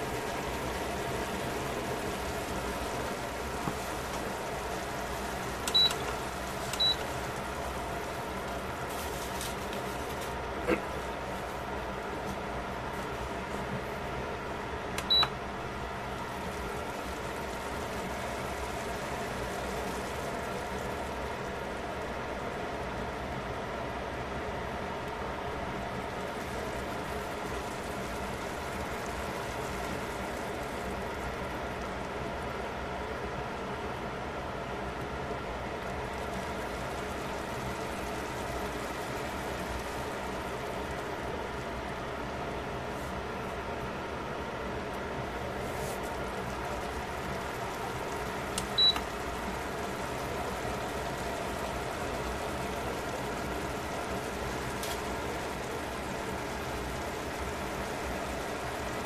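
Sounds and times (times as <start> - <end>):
pot simmering with a hiss: 0.0 - 59.0
click: 15.0 - 15.4, 48.6 - 49.1.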